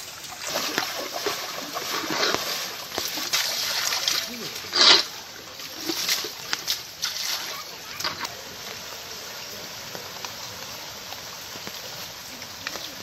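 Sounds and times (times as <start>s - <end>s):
short splashes: 0.0s - 8.2s
watery hiss of rain: 0.0s - 13.0s.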